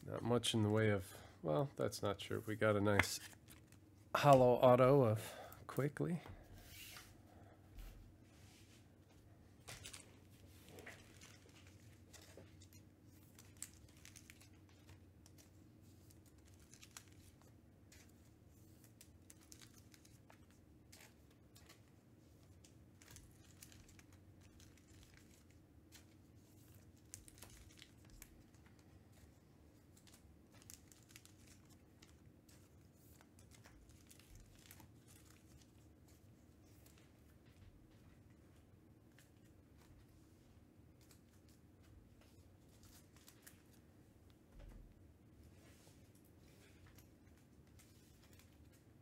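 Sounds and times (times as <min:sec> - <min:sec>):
low steady hum: 0:00.0 - 0:49.0
trading cards rustling and clicking: 0:02.6 - 0:04.5, 0:09.6 - 0:38.2.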